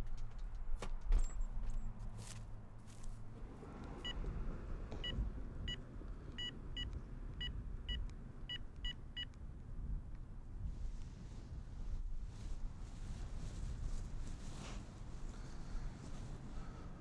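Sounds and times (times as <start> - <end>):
phone keypad beeps: 6.4 - 9.3.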